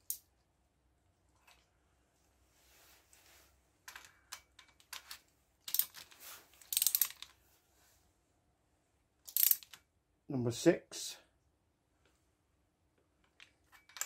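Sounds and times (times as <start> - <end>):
socket wrench ratcheting: 6.6 - 7.3, 9.3 - 9.8
metal tool clicks: 9.3 - 9.8.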